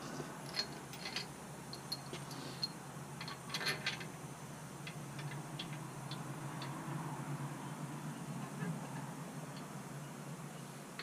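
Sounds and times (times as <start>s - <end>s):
light metallic clinks and ticks: 0.4s - 4.1s, 4.8s - 6.8s, 9.5s - 9.7s.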